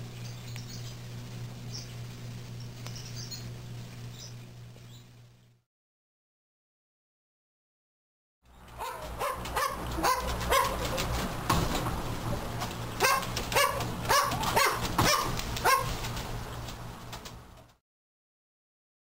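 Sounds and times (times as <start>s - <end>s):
steady low hum: 0.0s - 5.6s, 8.5s - 17.8s
short barks or yips: 8.8s - 10.9s, 13.0s - 15.9s.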